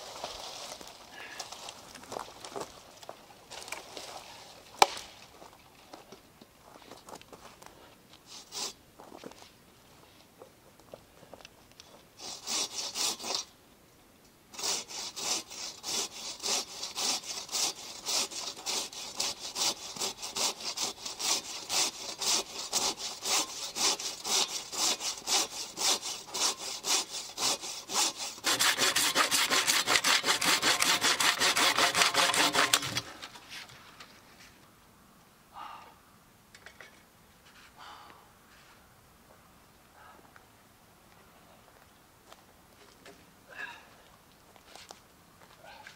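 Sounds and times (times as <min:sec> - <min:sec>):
hand saw cutting log: 0:12.2 - 0:13.5, 0:14.6 - 0:33.5.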